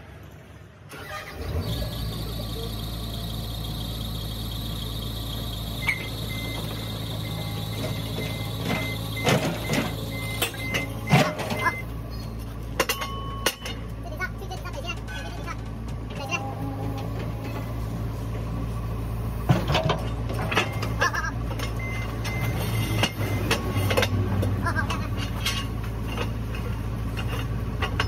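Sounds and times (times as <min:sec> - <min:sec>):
excavator diesel engine running: 0:00.7 - 0:28.0
short beeps: 0:05.8 - 0:12.3, 0:21.8 - 0:23.9
metal clanks: 0:12.7 - 0:13.9, 0:19.5 - 0:28.0.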